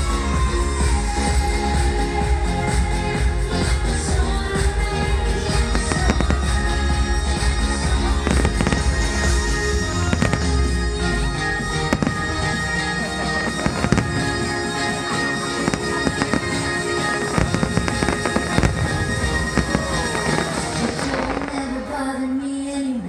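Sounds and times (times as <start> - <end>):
loud music: 0.0 - 23.0
fireworks bangs and crackles: 4.6 - 22.0.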